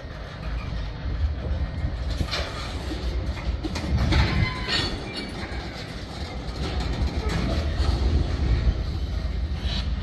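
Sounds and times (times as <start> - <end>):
train wheels rumbling on rail: 0.0 - 10.0
metallic clatter: 1.9 - 8.5.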